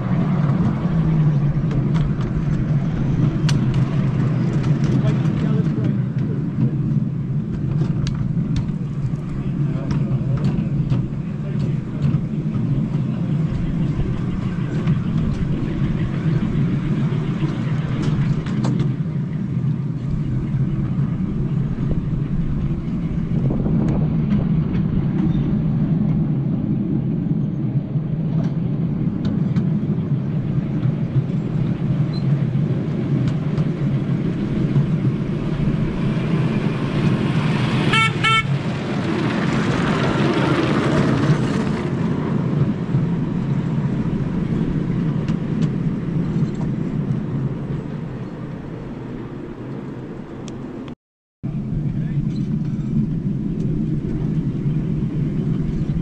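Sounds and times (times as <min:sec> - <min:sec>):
miniature train rumbling: 0:00.0 - 0:50.8
rush of noise: 0:00.0 - 0:56.0
high train toot: 0:37.7 - 0:38.9.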